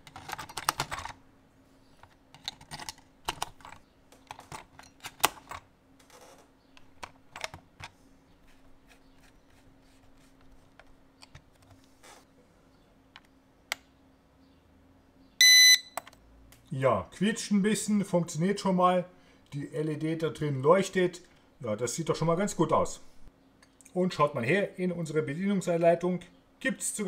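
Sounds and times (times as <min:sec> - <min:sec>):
plastic clicks and rattles: 0:00.0 - 0:01.2, 0:02.0 - 0:08.0.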